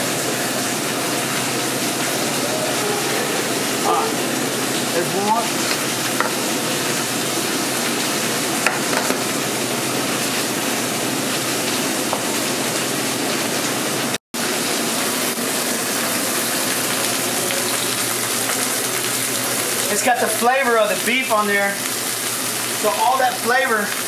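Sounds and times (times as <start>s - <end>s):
steaks sizzling on a griddle: 14.4s - 24.0s.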